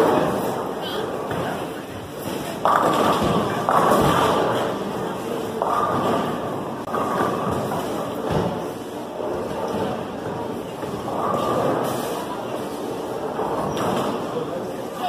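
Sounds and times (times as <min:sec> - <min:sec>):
bowling balls rolling: 0:00.0 - 0:14.9
bowling pins crashing: 0:02.2 - 0:12.0.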